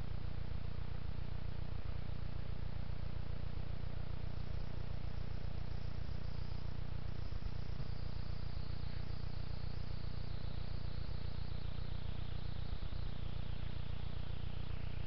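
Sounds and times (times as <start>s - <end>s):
low electrical hum: 0.0s - 15.0s
insect chirring: 4.1s - 15.0s.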